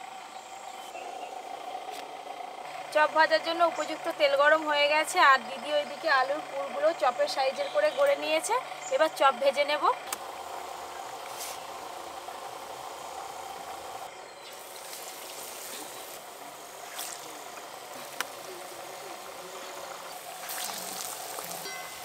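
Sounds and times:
hot oil sizzling: 0:10.2 - 0:22.0.

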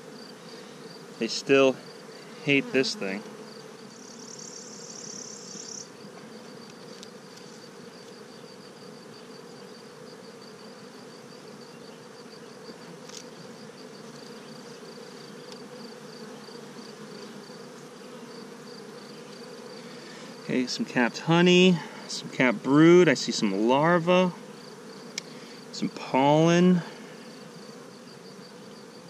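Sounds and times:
bees buzzing: 0:00.0 - 0:29.0
hive tool click: 0:25.1 - 0:25.3.

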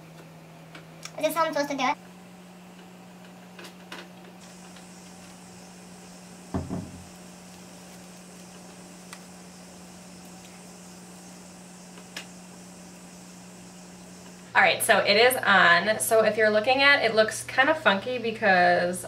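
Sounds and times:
steady low hum: 0:00.0 - 0:19.0
short thump: 0:06.5 - 0:07.1.

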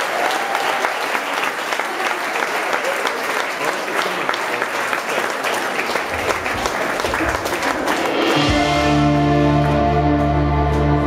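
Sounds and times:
audience applause: 0:00.0 - 0:10.3
band playing held low chord: 0:06.0 - 0:11.0.

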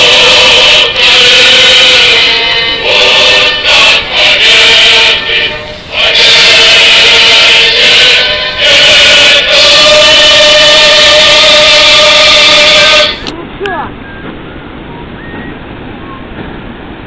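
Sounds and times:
choir singing held notes: 0:00.0 - 0:13.3.

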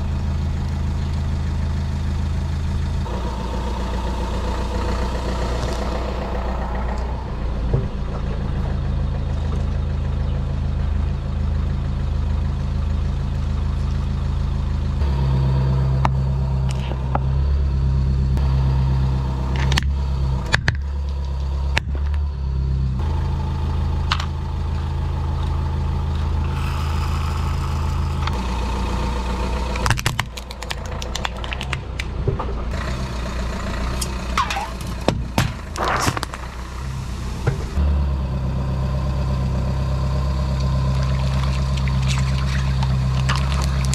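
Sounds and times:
car engine idling: 0:00.0 - 0:43.9
plastic toys cracking and snapping: 0:29.8 - 0:32.1.

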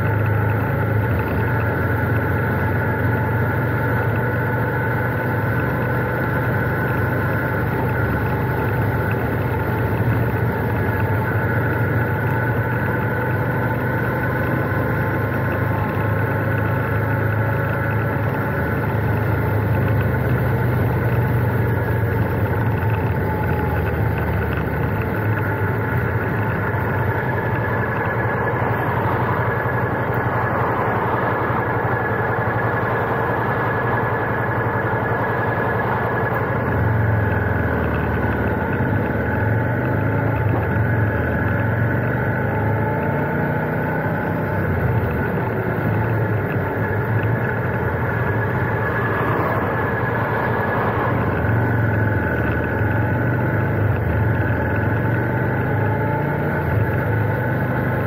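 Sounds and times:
motorcycle engine running: 0:00.0 - 0:58.0
dense rushing noise: 0:45.5 - 0:53.1.

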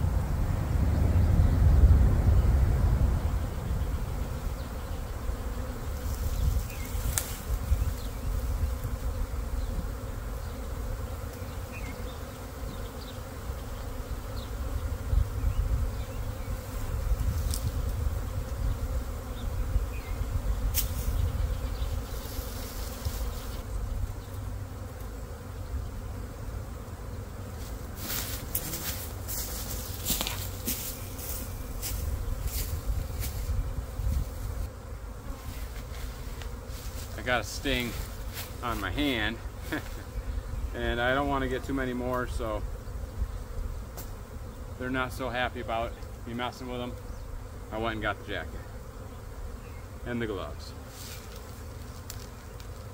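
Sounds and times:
bee swarm buzzing: 0:00.0 - 0:52.9.

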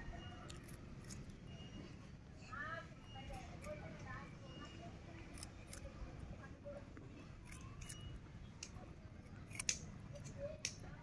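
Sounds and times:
rabbit crunching radish: 0:00.4 - 0:01.3, 0:05.2 - 0:06.1, 0:07.4 - 0:08.0, 0:09.2 - 0:10.7.

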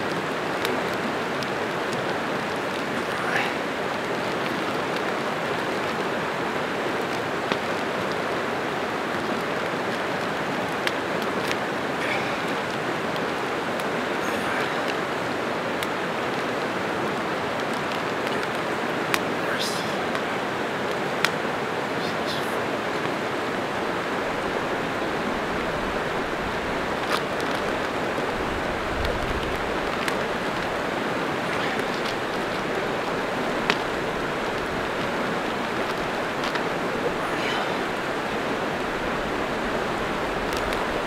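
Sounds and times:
creek water rushing: 0:00.0 - 0:41.0
faint clicks: 0:20.9 - 0:21.4, 0:27.0 - 0:30.8, 0:40.4 - 0:41.0.

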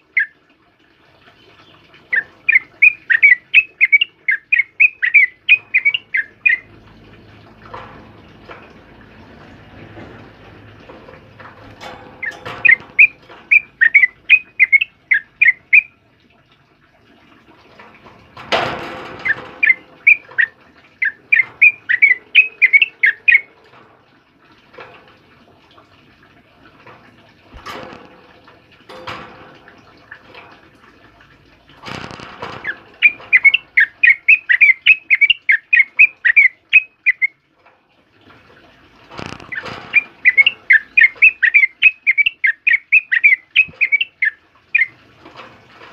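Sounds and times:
bird singing chirped notes: 0:02.1 - 0:06.7, 0:12.2 - 0:15.9, 0:19.2 - 0:23.5, 0:32.6 - 0:37.3, 0:39.5 - 0:44.9.

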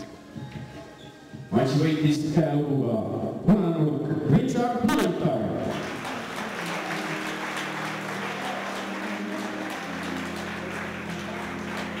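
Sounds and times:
music with held low notes: 0:00.0 - 0:12.0
crowd applauding: 0:05.6 - 0:12.0.

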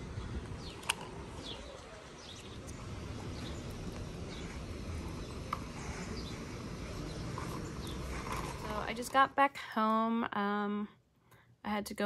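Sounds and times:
small birds chirping: 0:00.0 - 0:09.0
low outdoor rumble: 0:00.0 - 0:11.0.

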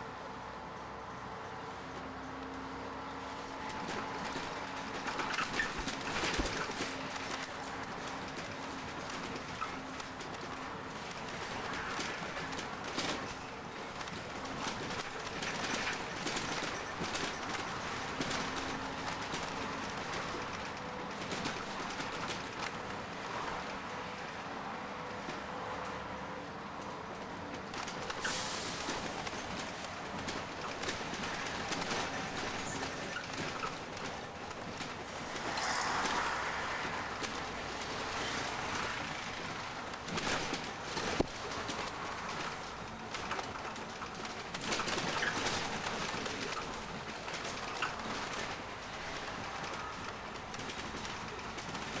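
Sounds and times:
road vehicle running: 0:00.0 - 0:52.0
small clicks and rattles: 0:38.1 - 0:52.0.

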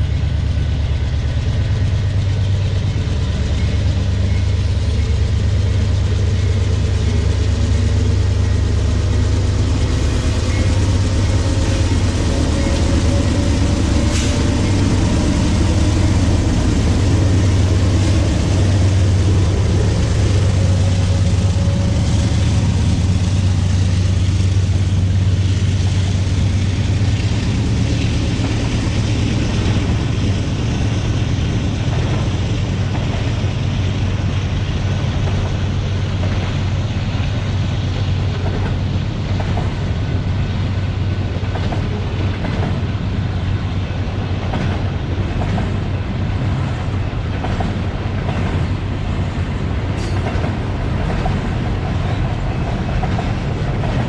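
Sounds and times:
diesel locomotive engine drone: 0:00.0 - 0:54.0
freight cars rumbling on rails: 0:00.0 - 0:54.0.

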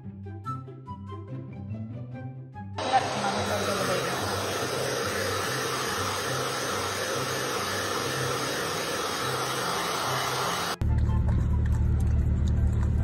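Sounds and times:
air blowing: 0:02.8 - 0:10.8
electric appliance motor running: 0:02.8 - 0:10.9.

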